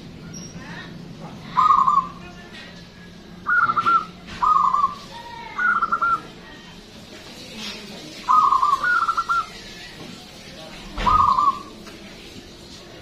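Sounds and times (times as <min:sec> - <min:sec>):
dove cooing with rolling trill: 0:01.5 - 0:02.2, 0:03.4 - 0:06.3, 0:08.2 - 0:09.6, 0:11.0 - 0:11.7.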